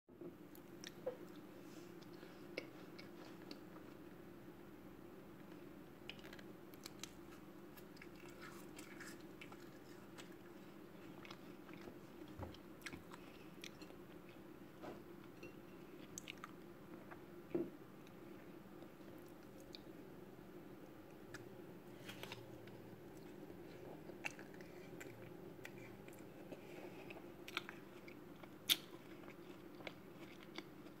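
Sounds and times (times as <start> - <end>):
steady low hum: 0.1 - 31.0.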